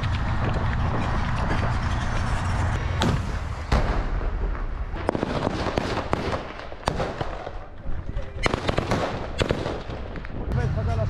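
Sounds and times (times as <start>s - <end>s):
low rumble: 0.0s - 5.8s, 10.0s - 11.0s.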